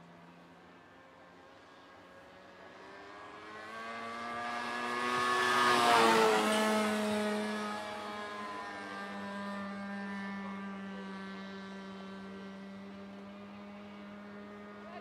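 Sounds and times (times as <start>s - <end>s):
model airplane engine running: 5.4s - 15.0s.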